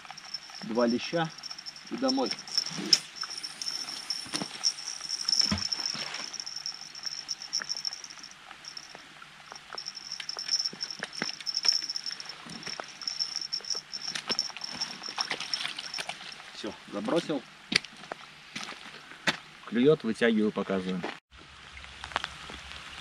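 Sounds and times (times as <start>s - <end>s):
high-pitched pulsing whine: 0.0s - 16.4s.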